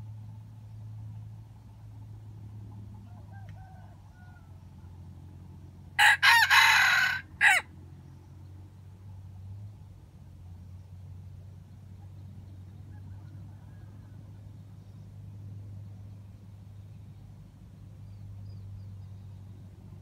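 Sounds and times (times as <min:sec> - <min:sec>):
rooster crowing: 0:03.1 - 0:04.6, 0:06.0 - 0:07.7.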